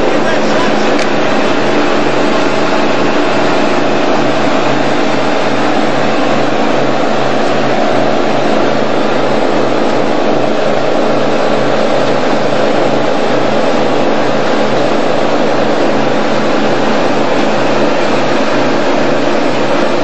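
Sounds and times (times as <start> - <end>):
motorboat engine droning: 0.0 - 20.0.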